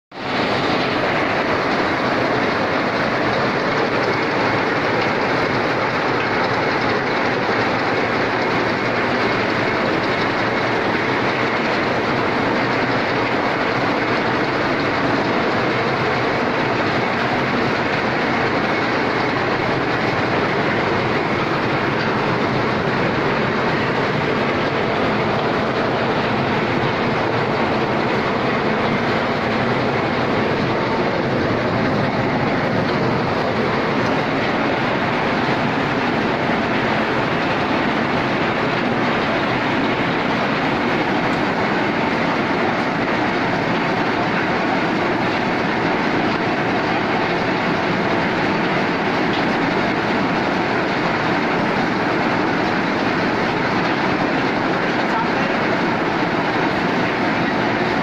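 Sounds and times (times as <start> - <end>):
processing machine clattering: 0.1 - 58.0.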